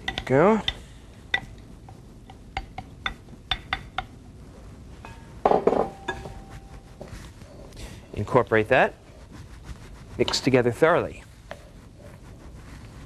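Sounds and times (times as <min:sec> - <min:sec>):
spoon clinking on glass bowls: 0:05.0 - 0:06.5.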